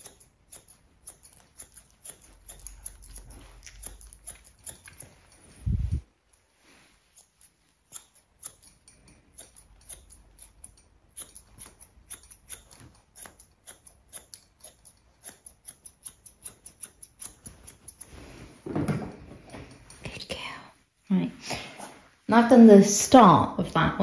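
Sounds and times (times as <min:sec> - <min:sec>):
scissors snipping hair: 0:00.0 - 0:05.8, 0:07.1 - 0:18.2.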